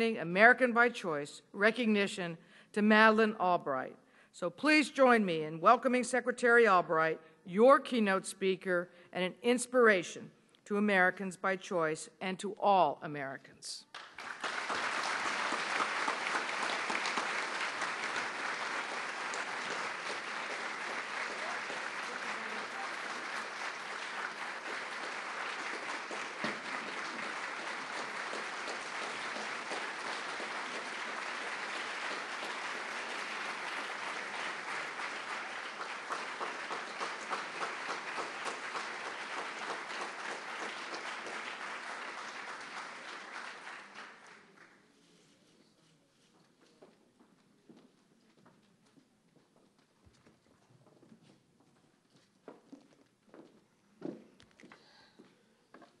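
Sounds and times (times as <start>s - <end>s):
audience applauding: 13.9s - 44.8s.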